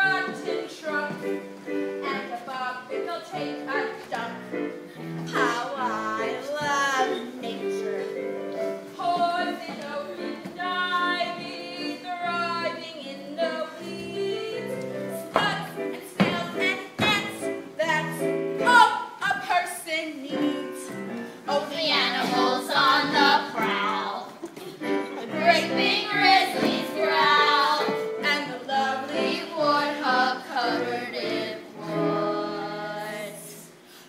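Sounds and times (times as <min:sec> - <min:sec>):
girl singing: 0:05.3 - 0:08.1, 0:08.9 - 0:18.0
instrumental accompaniment: 0:20.3 - 0:33.9.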